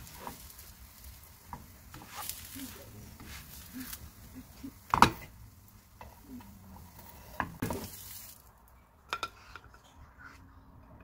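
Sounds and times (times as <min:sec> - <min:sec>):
toast sizzling in frying pan: 0:00.0 - 0:08.7.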